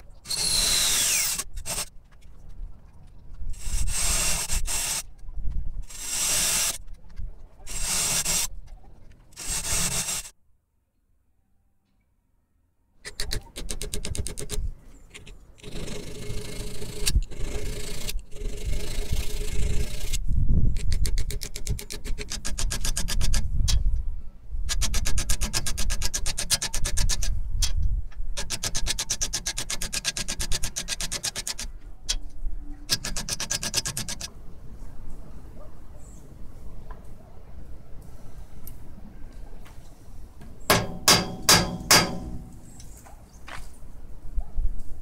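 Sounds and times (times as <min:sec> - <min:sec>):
hacksaw cutting steel rod: 0:40.7 - 0:42.7.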